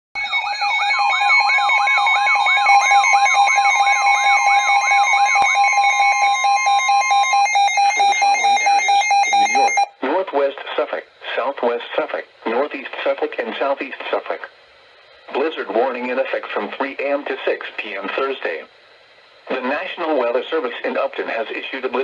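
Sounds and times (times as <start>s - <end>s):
rapid pulsing alarm beeps: 0.2s - 9.9s
sweeping siren-like tone: 0.2s - 9.9s
steady alert tone: 0.3s - 9.9s
faint broadcast voice: 9.4s - 14.6s, 15.3s - 18.7s, 19.5s - 22.0s.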